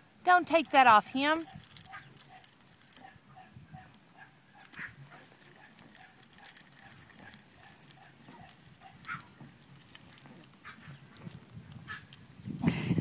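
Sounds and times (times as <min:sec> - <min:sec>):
puppies scuffling: 0:04.6 - 0:12.3.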